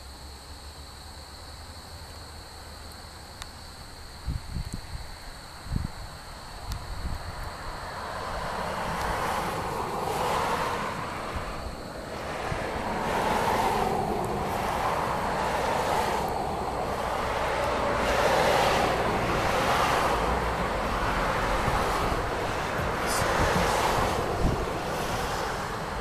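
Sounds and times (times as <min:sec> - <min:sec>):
wind rumble on microphone: 0:04.1 - 0:26.0
vehicles passing: 0:05.6 - 0:26.0.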